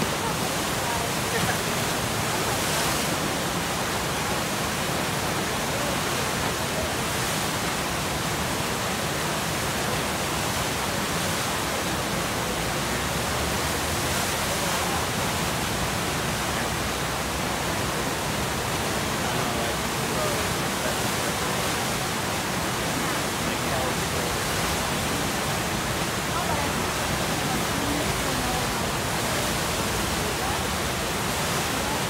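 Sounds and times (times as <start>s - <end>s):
whitewater rushing: 0.0s - 32.0s.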